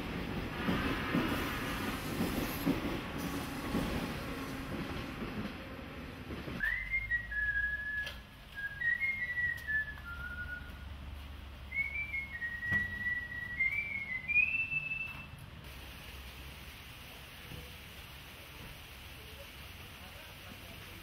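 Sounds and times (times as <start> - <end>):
person whistling a slow tune: 6.6 - 10.8, 11.7 - 15.3.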